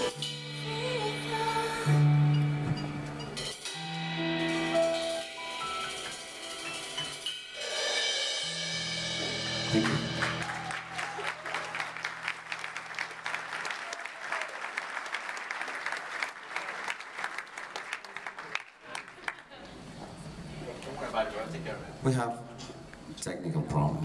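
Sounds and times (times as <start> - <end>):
audience applause: 9.7 - 19.9.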